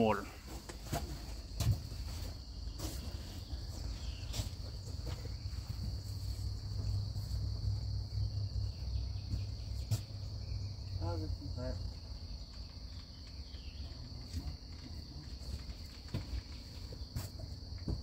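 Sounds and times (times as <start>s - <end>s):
high-pitched insect chorus: 0.0s - 18.0s.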